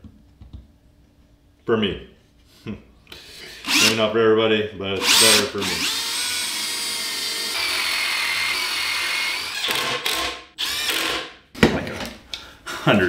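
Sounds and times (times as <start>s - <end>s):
drill driving screws into wood: 3.6s - 4.0s, 5.0s - 11.4s.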